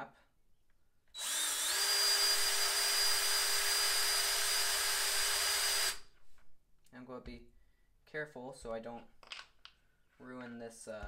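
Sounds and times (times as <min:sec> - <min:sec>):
power drill whining: 0:01.1 - 0:06.1.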